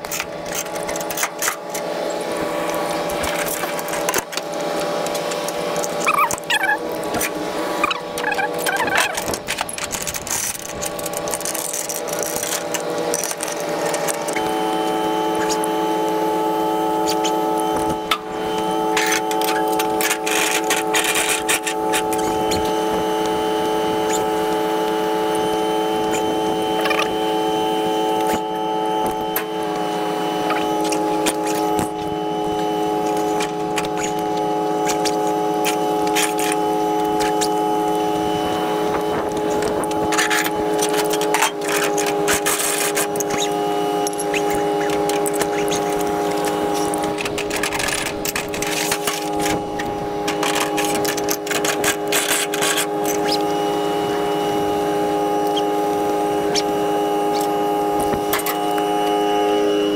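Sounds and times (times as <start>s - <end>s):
steady engine drone: 0.0s - 59.9s
clicks and rattles: 2.6s - 14.4s.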